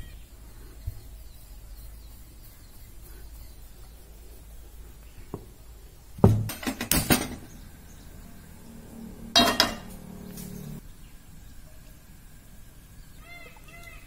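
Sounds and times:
frying pan set on metal grate: 0:06.2 - 0:07.5, 0:09.4 - 0:10.6
kitchen clatter knocks and clinks: 0:06.2 - 0:07.5, 0:09.4 - 0:09.9.

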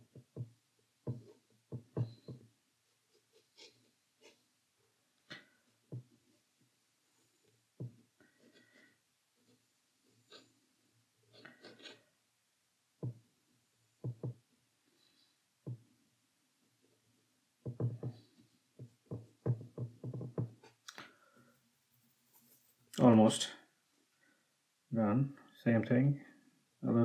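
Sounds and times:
paintbrush tapping on paper: 0:00.0 - 0:02.6, 0:05.3 - 0:06.3, 0:07.8 - 0:08.7, 0:14.0 - 0:14.4, 0:17.6 - 0:20.8.

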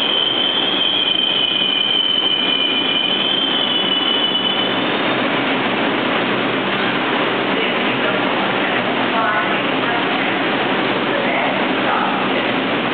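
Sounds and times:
train wheels squealing on rails: 0:00.0 - 0:05.4
train rolling noise: 0:00.0 - 0:12.9.

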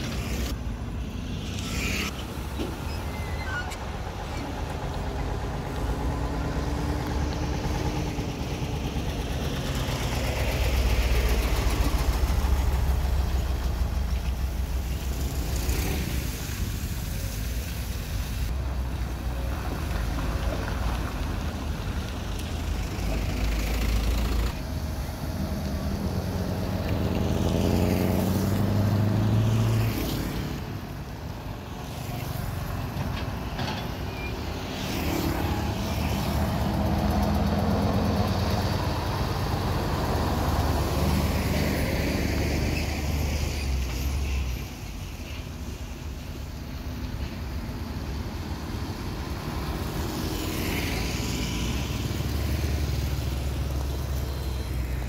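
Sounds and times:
excavator diesel engine: 0:00.0 - 0:29.8, 0:30.6 - 0:43.9
trucks passing: 0:00.0 - 0:55.0.

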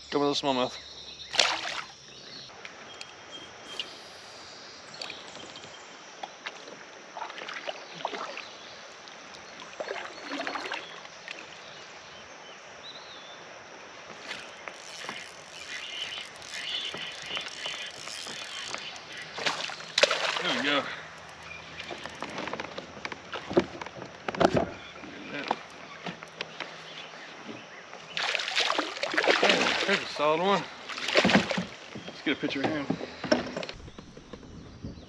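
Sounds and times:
fish splashing into water: 0:01.3 - 0:02.0, 0:14.2 - 0:20.9, 0:28.2 - 0:30.1, 0:30.8 - 0:31.9
water moving around kayak: 0:04.9 - 0:12.8, 0:13.4 - 0:35.0.

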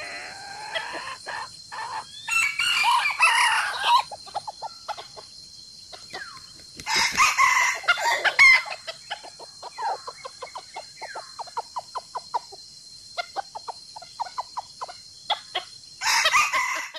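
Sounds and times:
chickens clucking: 0:00.0 - 0:02.2, 0:03.7 - 0:15.8
rooster crowing: 0:00.0 - 0:04.2, 0:06.8 - 0:08.8, 0:16.0 - 0:16.9.

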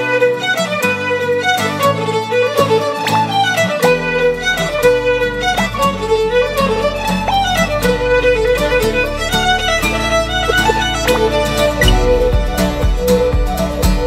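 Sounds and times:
fiddle melody over a beat: 0:00.0 - 0:14.0
bass line: 0:06.9 - 0:14.0.

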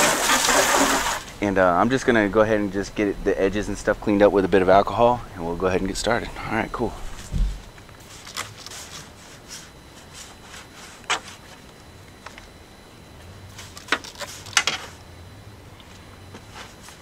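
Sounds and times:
rag rubbing boat hull: 0:00.0 - 0:01.3.

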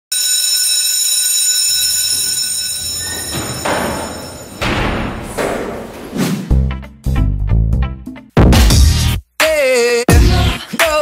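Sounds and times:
electronic alarm ringing: 0:00.1 - 0:05.3
music with heavy low beat: 0:08.4 - 0:11.0.

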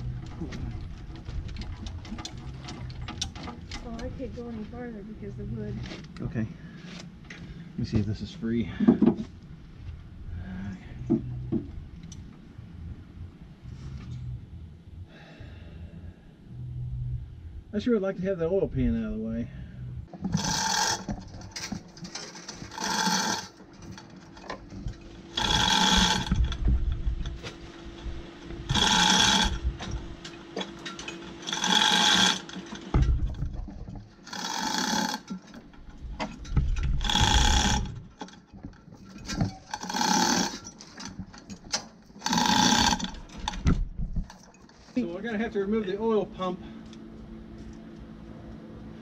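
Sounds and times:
chain hoist ratcheting: 0:20.2 - 0:26.6, 0:28.7 - 0:33.6, 0:34.2 - 0:43.6.

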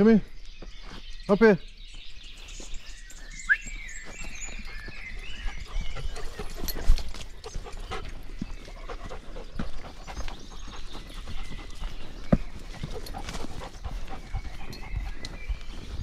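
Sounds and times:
footsteps scuffing on dirt: 0:00.4 - 0:16.0
dog panting: 0:04.0 - 0:16.0.

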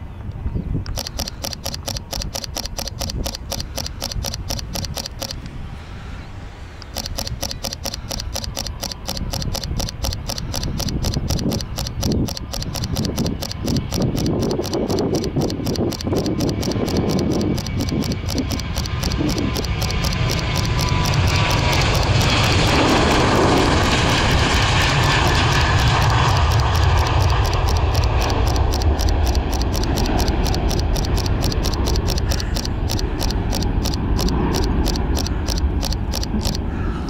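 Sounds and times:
camera shutter burst: 0:00.9 - 0:05.4, 0:06.8 - 0:36.6
jet engine roar: 0:12.8 - 0:37.0.

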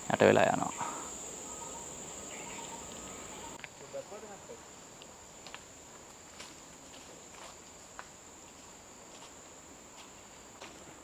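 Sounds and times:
insects droning: 0:00.0 - 0:11.0
soft footsteps: 0:05.4 - 0:11.0.

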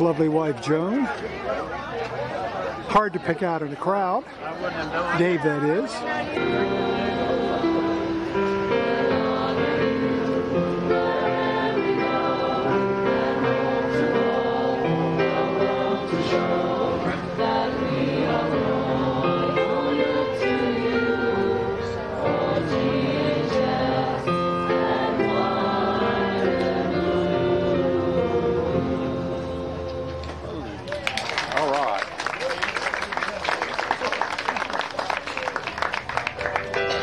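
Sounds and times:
choir singing in harmony: 0:05.4 - 0:30.6
electronic keyboard: 0:05.6 - 0:30.6, 0:36.3 - 0:37.0.

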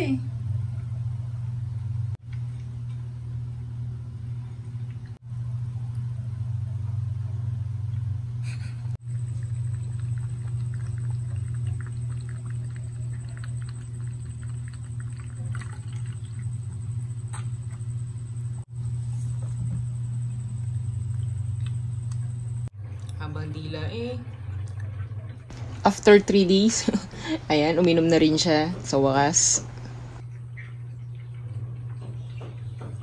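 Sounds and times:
pump humming: 0:08.2 - 0:22.7, 0:25.5 - 0:30.2
cat lapping water: 0:09.0 - 0:17.0
water trickling into basin: 0:09.1 - 0:17.2.

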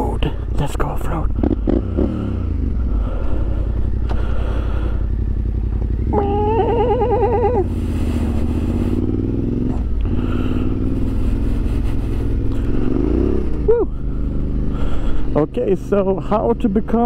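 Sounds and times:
motorcycle engine running: 0:00.0 - 0:17.0
wavering warbling tone: 0:06.0 - 0:07.7.

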